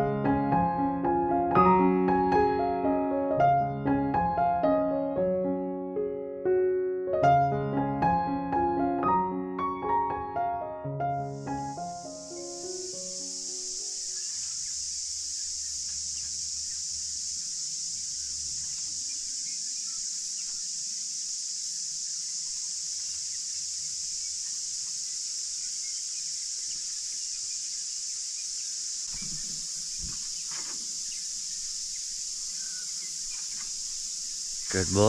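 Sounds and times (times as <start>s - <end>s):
high-pitched insect chorus: 11.2s - 35.0s
faint bird chirps: 11.6s - 35.0s.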